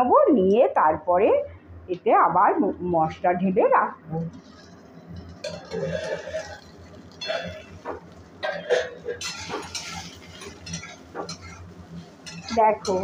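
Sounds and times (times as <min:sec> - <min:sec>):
metal spatula scraping a pan: 0:04.3 - 0:13.0.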